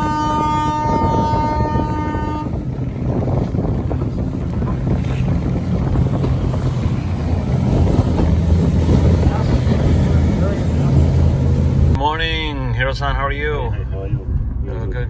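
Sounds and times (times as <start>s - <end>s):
motorboat engines droning: 0.0s - 12.0s
water noise: 0.0s - 12.0s
wind: 0.0s - 15.0s.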